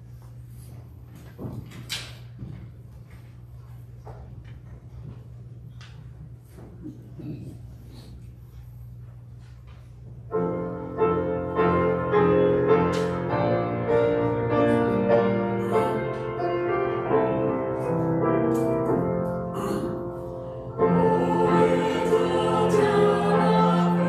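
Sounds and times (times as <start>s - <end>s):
slow hymn-like piano: 10.3s - 24.0s.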